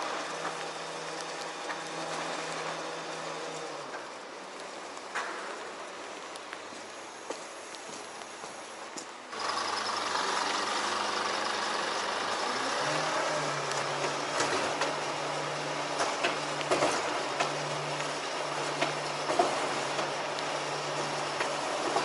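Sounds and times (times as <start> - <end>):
hydraulic ladder lift hum: 9.3 - 22.0.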